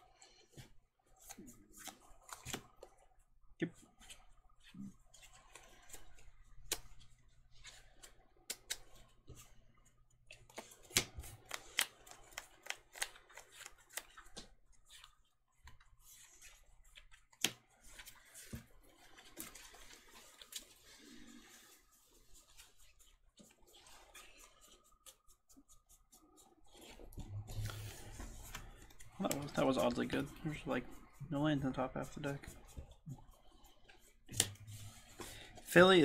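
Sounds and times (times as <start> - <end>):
rustle of sleeved cards: 10.3 - 36.0.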